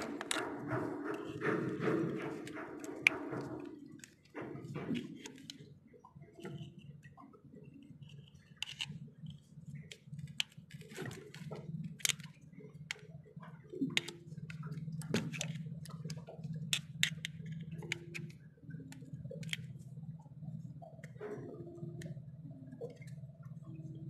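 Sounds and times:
screwdriver clicking and scraping metal: 0.0 - 5.6, 8.6 - 8.9, 10.3 - 12.3, 15.1 - 15.6
steady low hum: 0.0 - 24.0.

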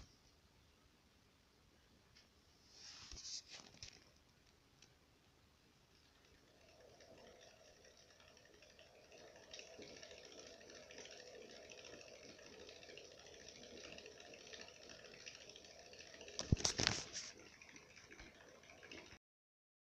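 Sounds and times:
hamster paws pattering on wheel: 5.9 - 19.2.

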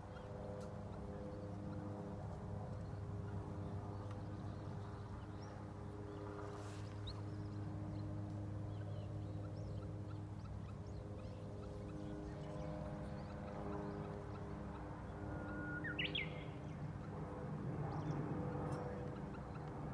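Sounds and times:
low machine hum: 0.0 - 19.9
small birds chirping: 0.0 - 19.9.

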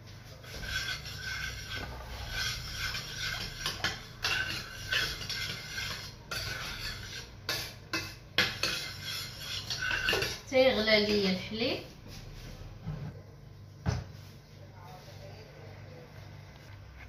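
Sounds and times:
metal spoon scraping saucepan: 0.3 - 11.3.

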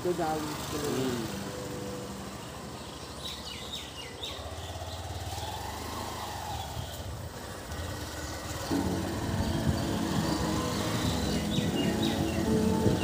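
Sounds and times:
road noise: 0.0 - 13.0
vehicle engine hum: 0.0 - 13.0
high chirps: 8.7 - 13.0.

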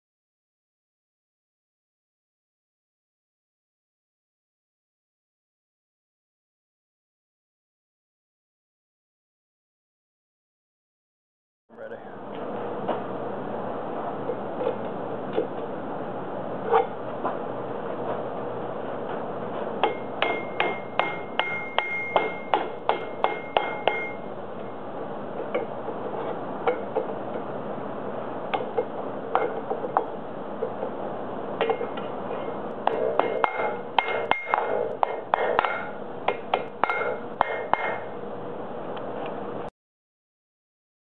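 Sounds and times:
steady hum: 11.7 - 39.7
hammer striking hot steel: 19.8 - 24.3, 31.6 - 38.2.

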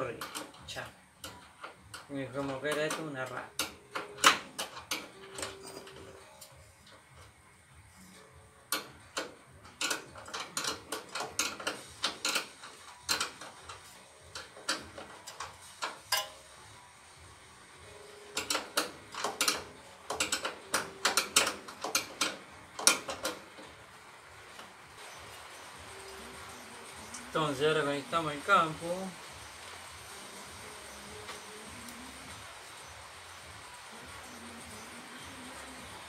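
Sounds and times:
metallic clicks of hand tools: 8.7 - 16.4, 18.4 - 23.7.

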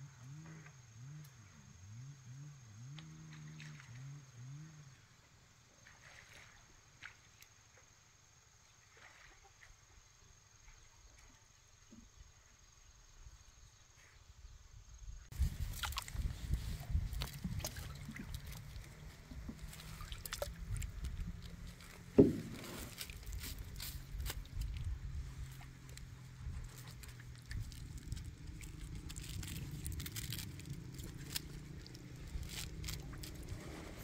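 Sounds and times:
low steady hum: 14.9 - 34.0
net hauled out of water: 15.4 - 34.0
water sloshing: 15.4 - 34.0.

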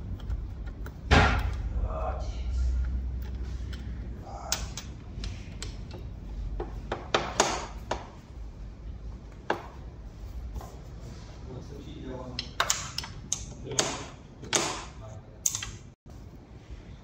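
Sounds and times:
hex key clicking on bolt: 15.4 - 15.9.

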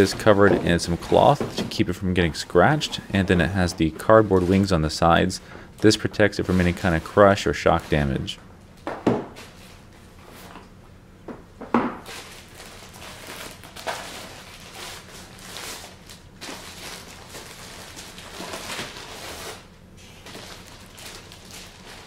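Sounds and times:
cloth and plastic wrapping rustling: 0.0 - 8.4, 12.0 - 19.6, 20.2 - 22.0.

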